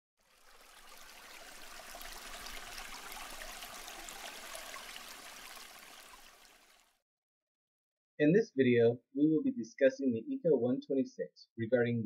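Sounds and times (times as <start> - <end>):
running water: 0.2 - 7.0.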